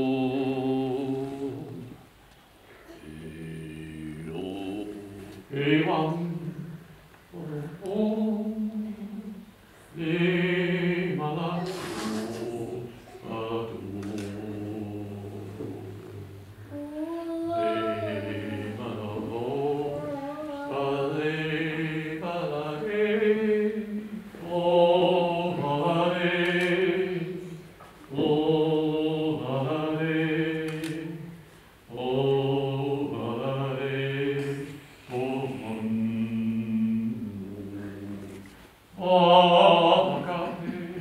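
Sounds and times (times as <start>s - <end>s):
breaths: 9.6s - 10.0s
man chanting wordlessly: 10.0s - 27.4s.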